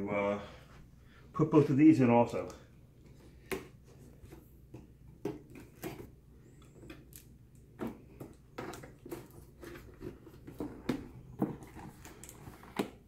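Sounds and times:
box handling scratches and taps: 7.8s - 13.0s.

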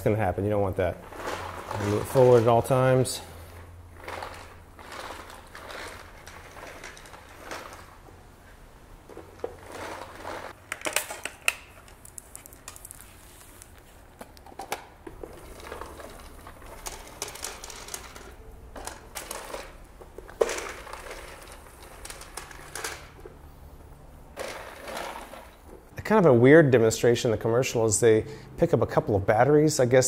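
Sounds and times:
spin broom sweeping dry kibble: 1.0s - 8.0s.

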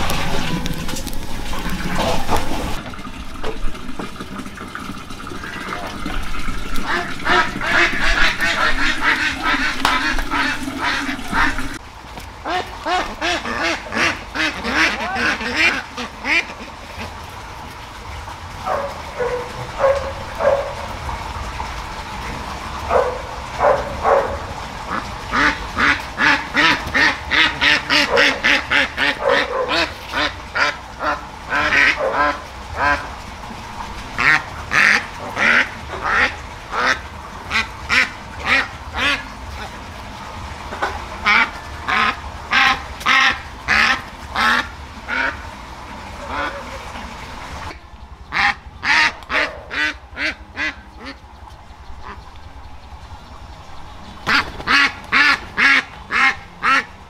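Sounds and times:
ducks quacking: 5.5s - 11.8s, 12.4s - 17.3s, 22.8s - 33.2s, 34.2s - 39.9s, 40.6s - 57.0s.

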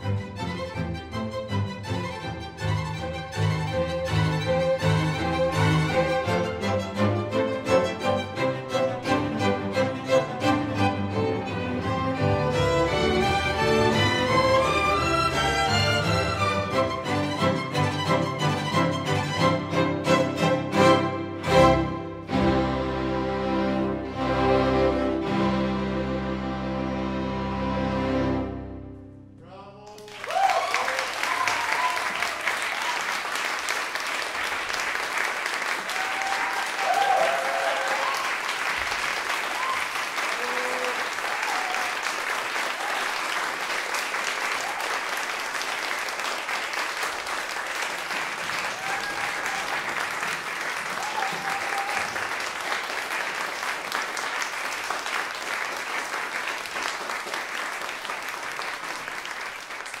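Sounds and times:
audience clapping: 12.5s - 21.0s, 29.8s - 60.0s.

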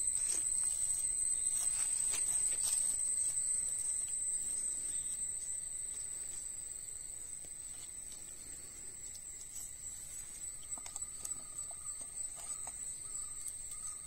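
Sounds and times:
insects chirring: 0.0s - 14.0s.

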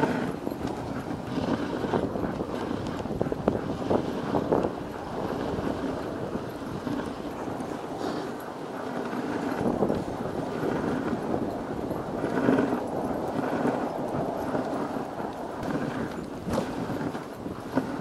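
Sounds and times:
dogs' rhythmic footfalls: 0.0s - 18.0s
sled runners scraping over snow: 0.0s - 18.0s.

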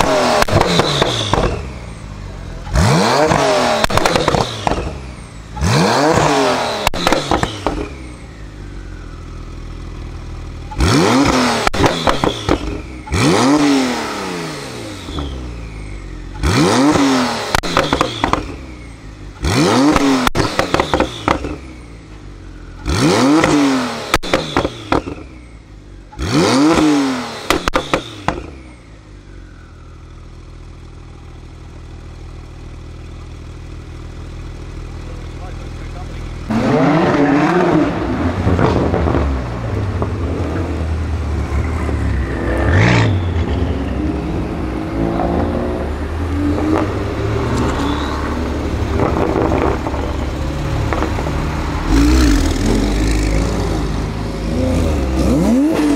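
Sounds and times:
exhaust crackles and pops: 0.0s - 1.6s, 3.2s - 4.9s, 6.1s - 7.9s, 10.7s - 13.2s, 16.3s - 18.6s, 19.8s - 21.6s, 22.8s - 25.2s, 27.5s - 28.6s, 38.2s - 40.9s, 46.5s - 53.5s
car engine idling: 0.0s - 13.3s, 14.2s - 26.3s, 27.4s - 36.8s, 38.2s - 55.8s
car engine revving: 0.0s - 55.9s.

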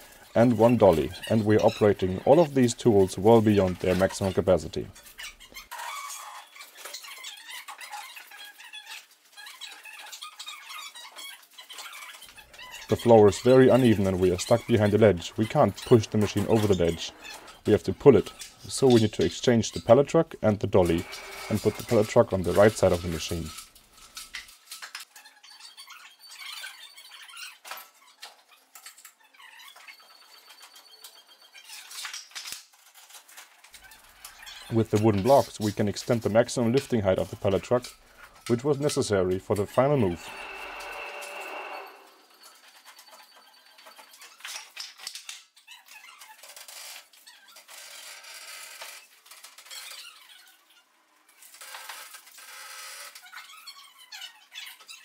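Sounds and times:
wheels squeaking: 0.0s - 20.0s, 20.6s - 24.4s, 32.9s - 44.8s
heavy machine scraping on concrete: 40.0s - 42.5s.

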